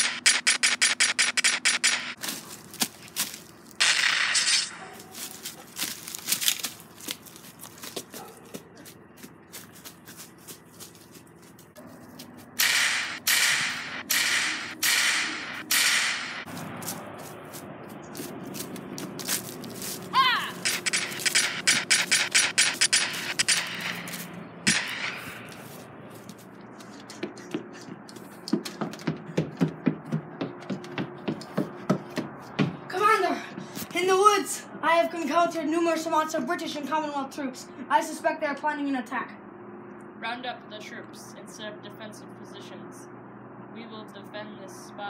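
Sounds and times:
gunshots: 0.0s - 2.2s, 3.8s - 4.8s, 12.6s - 16.5s, 20.6s - 25.6s
feet crackling in dry leaves: 2.2s - 3.8s, 4.8s - 12.6s, 16.5s - 21.3s, 25.3s - 27.0s
footsteps on wooden stairs: 5.0s - 12.3s, 25.3s - 32.9s.

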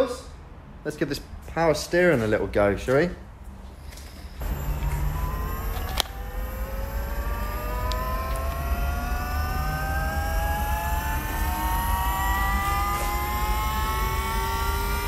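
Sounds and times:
low hum: 4.4s - 15.0s
power steering pump whine: 4.4s - 15.0s.

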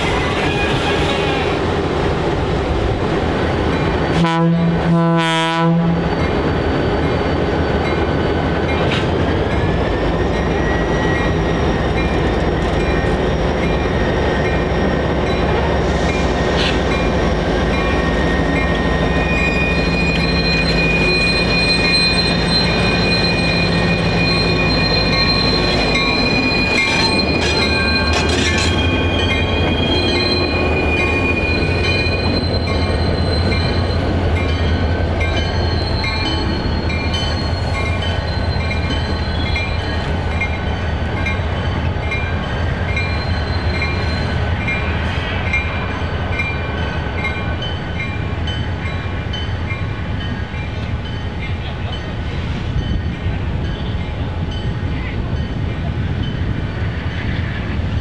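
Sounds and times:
locomotive horn blasts: 4.2s - 6.1s
wheel squeal: 15.8s - 34.7s, 35.4s - 40.2s, 43.0s - 44.5s.

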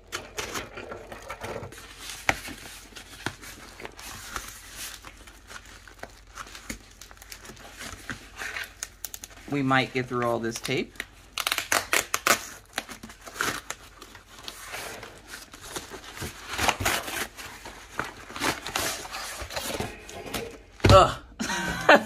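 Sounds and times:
cardboard being torn: 11.0s - 20.8s.

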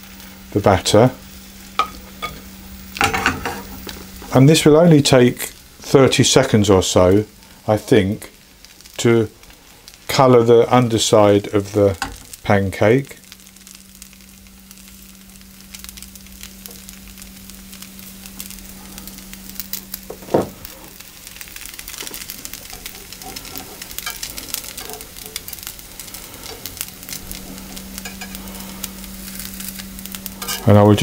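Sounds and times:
batter sizzling in a frying pan: 0.0s - 31.0s
low hum: 0.0s - 31.0s
spatula scraping: 22.6s - 28.4s, 29.2s - 30.8s.

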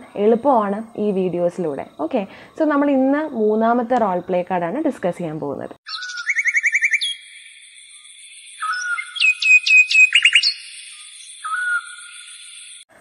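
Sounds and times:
songbird singing: 5.3s - 12.9s.

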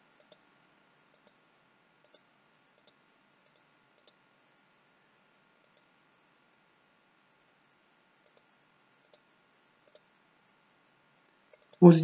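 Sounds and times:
faint computer mouse clicks: 0.1s - 0.5s, 1.1s - 1.4s, 2.0s - 4.2s, 5.6s - 5.9s, 8.2s - 10.1s.

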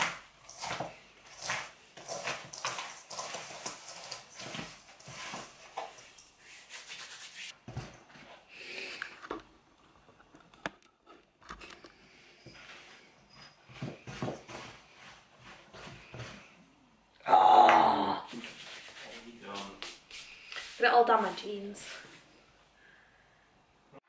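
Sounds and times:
wooden spoon scraping metal bowl: 0.0s - 7.6s.

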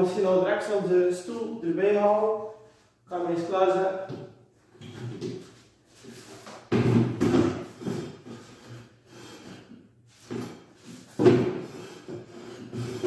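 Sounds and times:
chair legs scraping tiled floor: 6.0s - 13.0s.

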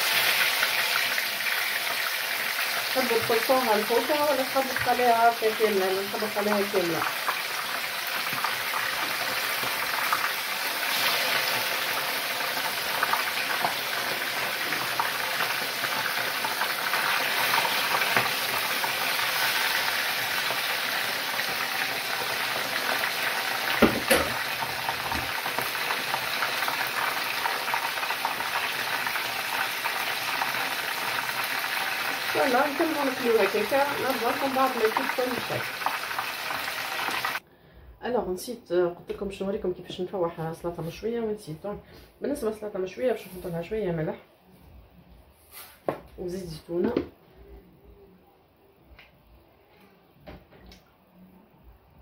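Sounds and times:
fish frying in hot oil: 0.0s - 37.4s
sharp knock: 23.8s - 24.4s.

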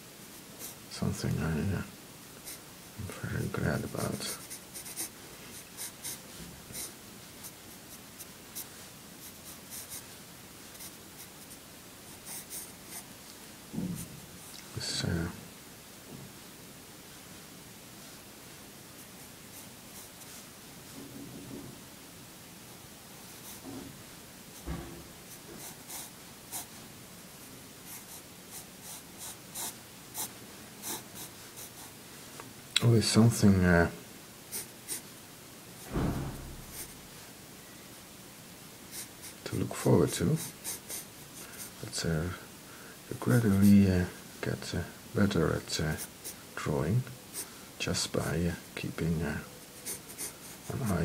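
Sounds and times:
pencil scratching on paper: 3.9s - 7.6s, 25.3s - 26.7s, 27.9s - 31.9s, 36.6s - 37.0s, 40.4s - 41.8s, 49.8s - 51.0s
light knock: 24.6s - 25.0s, 35.9s - 36.6s.

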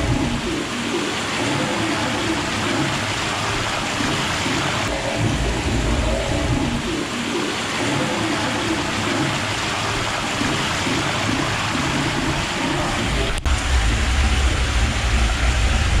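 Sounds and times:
water gushing from a pipe: 0.0s - 16.0s.

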